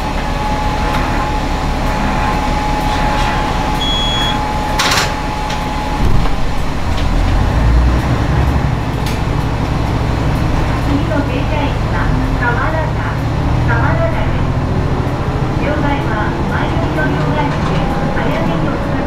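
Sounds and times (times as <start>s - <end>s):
diesel engine rumble: 0.0s - 19.0s
short beep: 3.8s - 4.5s.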